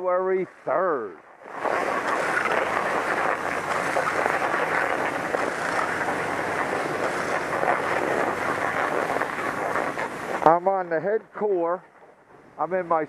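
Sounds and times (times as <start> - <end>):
skis scraping over snow: 1.4 - 10.8.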